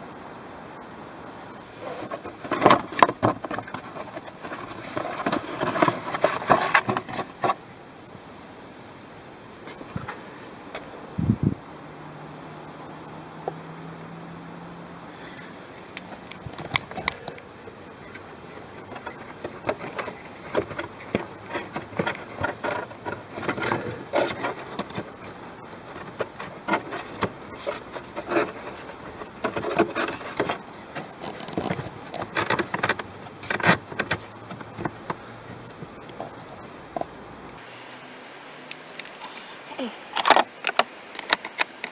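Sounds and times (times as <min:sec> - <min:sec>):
paper filter rustling on plastic: 0:01.6 - 0:07.7, 0:15.2 - 0:36.4.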